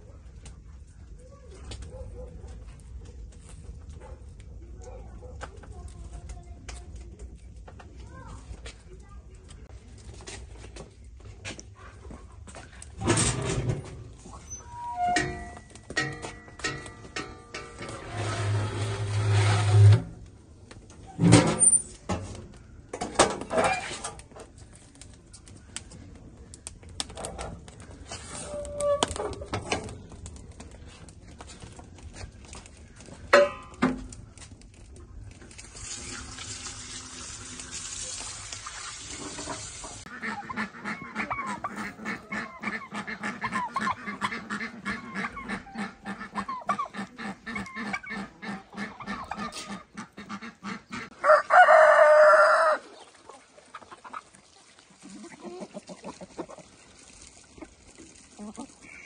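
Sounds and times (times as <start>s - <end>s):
chickens clucking: 39.2s - 59.0s.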